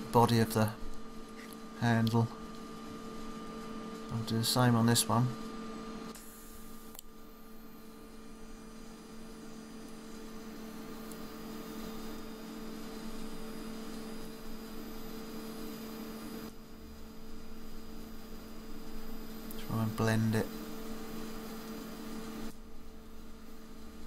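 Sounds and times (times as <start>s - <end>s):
electrical hum: 0.0s - 24.0s
welding arc hissing: 6.1s - 24.0s.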